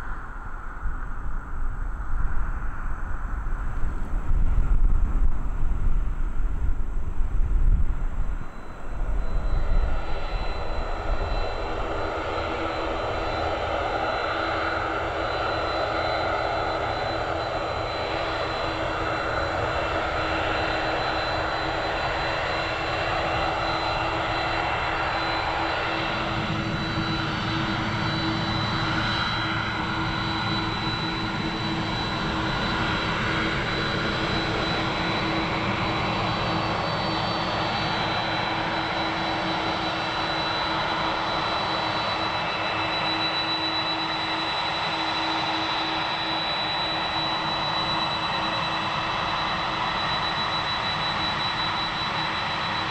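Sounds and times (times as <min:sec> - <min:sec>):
jet engines rushing hum and whine: 0:00.0 - 0:52.9.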